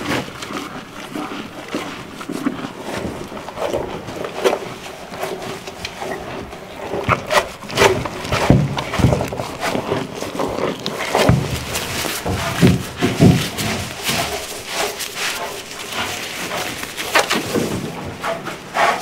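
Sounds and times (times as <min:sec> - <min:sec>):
cow crunching and chewing feed: 0:00.0 - 0:19.0
muzzle scraping metal bowl: 0:02.8 - 0:19.0
thumps: 0:07.0 - 0:18.2.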